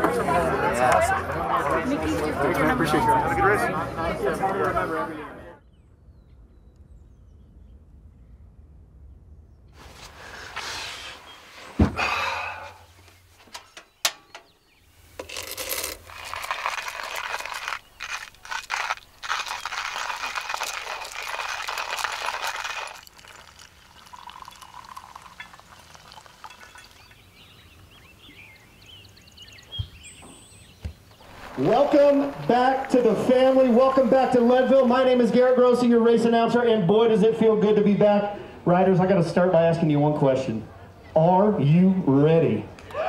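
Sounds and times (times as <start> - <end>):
clinks: 13.5 - 14.6, 24.0 - 27.2
manual coffee grinder crunching: 15.1 - 27.2.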